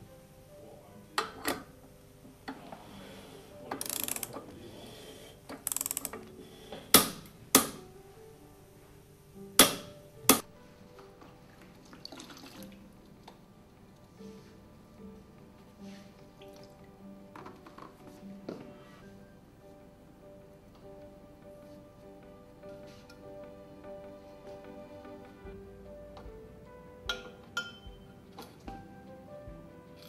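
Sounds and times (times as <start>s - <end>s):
torque wrench clicks: 3.8s - 4.4s, 5.6s - 6.2s
torque wrench ratcheting: 3.8s - 4.4s, 5.6s - 6.2s.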